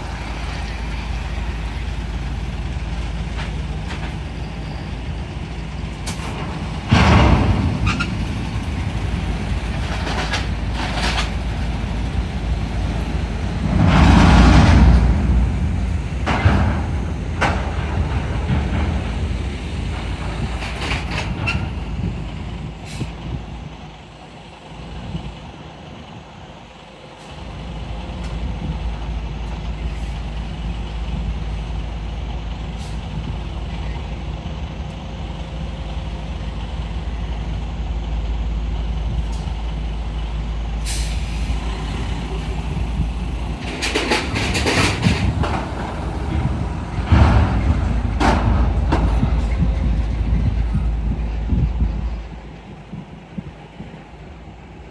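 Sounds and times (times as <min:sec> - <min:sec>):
diesel truck engine rumbling: 0:00.0 - 0:54.9
air brake hisses: 0:22.8 - 0:23.2, 0:40.8 - 0:41.7.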